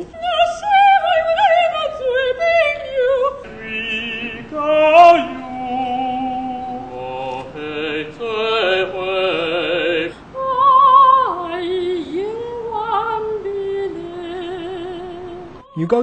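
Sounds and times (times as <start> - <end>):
soprano holding long notes: 0.0 - 15.6
operatic singing: 0.0 - 16.0.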